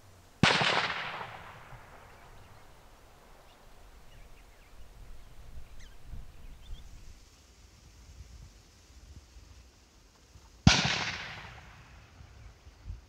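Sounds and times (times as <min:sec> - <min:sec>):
rifle shot with echo: 0:00.4 - 0:02.8, 0:10.7 - 0:12.1.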